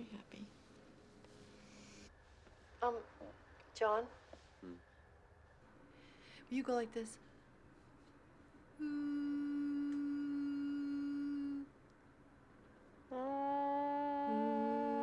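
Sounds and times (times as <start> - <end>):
lower hummed note: 8.8 - 11.7, 13.1 - 15.0
woman humming steady note: 8.8 - 11.7, 13.1 - 15.0.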